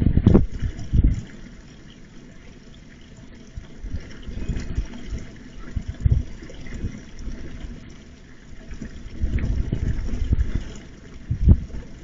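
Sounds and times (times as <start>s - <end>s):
low rumbling noise: 0.0s - 1.8s, 3.2s - 12.0s.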